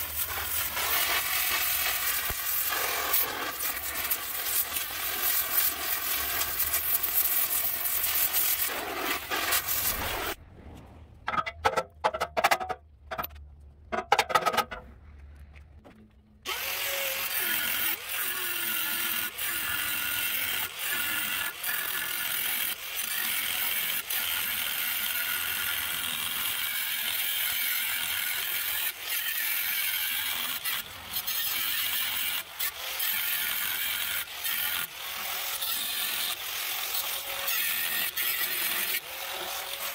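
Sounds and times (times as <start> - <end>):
power tool running: 16.5 - 23.7.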